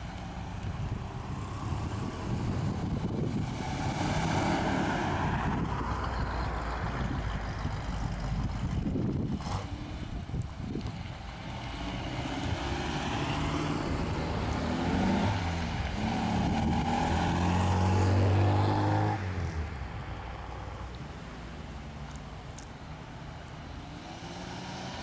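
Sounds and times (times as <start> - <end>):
cars driving past: 0.0 - 25.0
car engine accelerating: 1.2 - 19.8.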